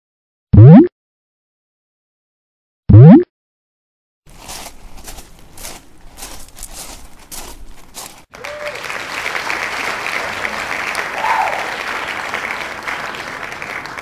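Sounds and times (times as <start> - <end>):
crowd applause: 8.3 - 14.0.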